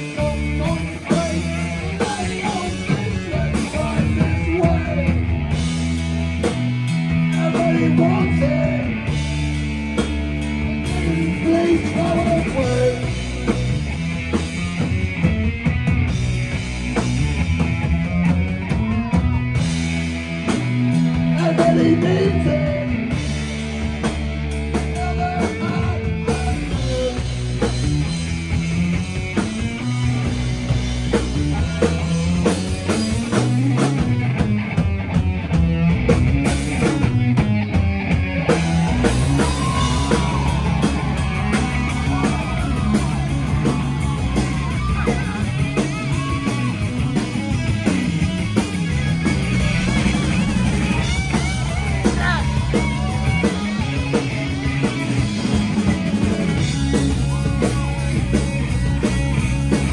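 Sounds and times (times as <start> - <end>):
heavy metal band playing: 0.0 - 59.9
person singing: 7.3 - 9.1, 10.8 - 13.7, 21.1 - 23.2, 24.7 - 27.7, 50.0 - 55.1.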